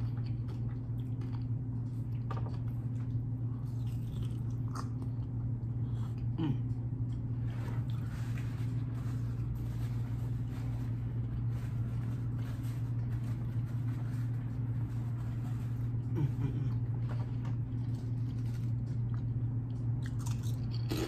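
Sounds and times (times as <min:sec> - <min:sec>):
soft chewing: 0:00.0 - 0:21.0
steady low hum: 0:00.0 - 0:21.0
paper napkin rustling: 0:07.5 - 0:16.0.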